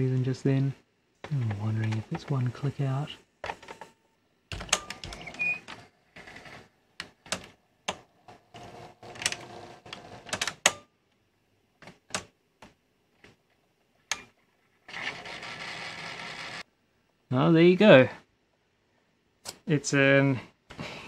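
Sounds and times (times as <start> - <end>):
tape deck mechanism clicking and whirring: 4.5 - 10.8.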